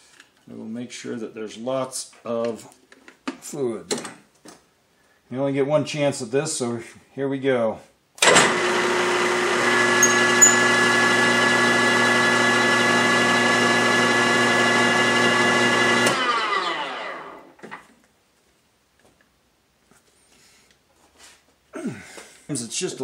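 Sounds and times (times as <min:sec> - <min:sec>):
drill press motor running: 0:08.2 - 0:17.5.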